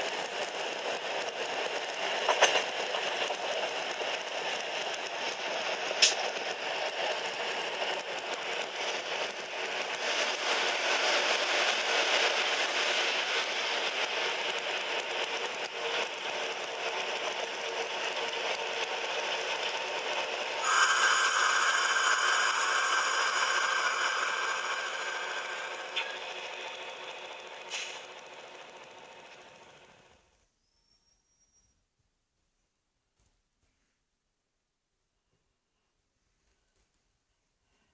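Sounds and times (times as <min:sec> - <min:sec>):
locomotive wheels and engine rush: 0:00.0 - 0:30.2
steady high ringing: 0:20.5 - 0:30.0.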